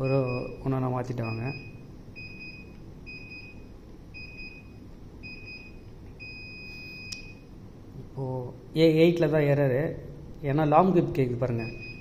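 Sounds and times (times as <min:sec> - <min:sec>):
long beep: 0:00.0 - 0:07.5, 0:11.6 - 0:12.0
short beeps: 0:00.0 - 0:07.5, 0:11.6 - 0:12.0
small click: 0:07.1 - 0:07.3.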